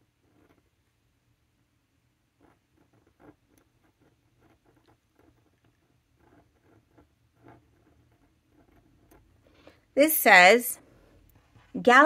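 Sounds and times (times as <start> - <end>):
pen nib scratching paper: 0.0 - 0.9, 2.2 - 10.0.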